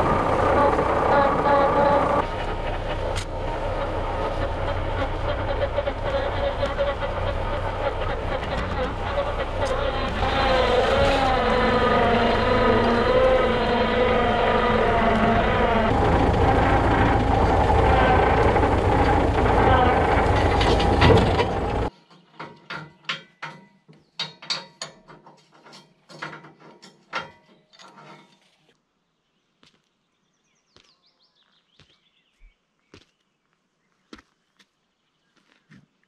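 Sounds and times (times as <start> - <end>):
bulldozer engine running: 0.0 - 21.9.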